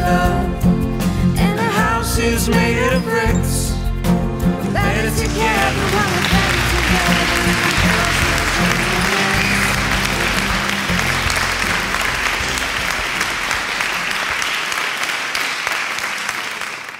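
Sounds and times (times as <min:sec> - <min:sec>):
song music: 0:00.0 - 0:15.3
crowd applauding: 0:04.8 - 0:16.9.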